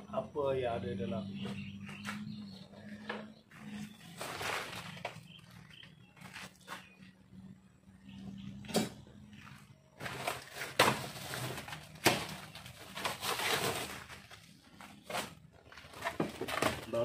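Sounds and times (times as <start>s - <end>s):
paper rustling: 3.6s - 7.0s, 9.4s - 17.0s.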